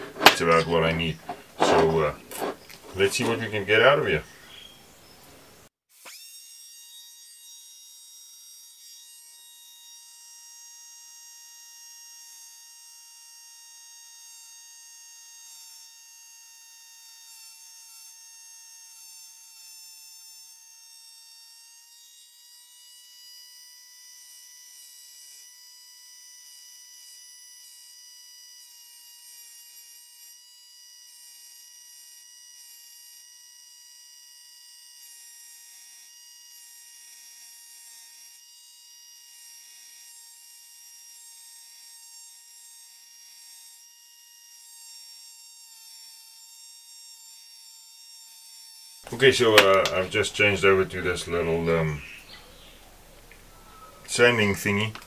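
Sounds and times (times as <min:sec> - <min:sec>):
rotary grinder whining on steel: 0:00.0 - 0:05.2.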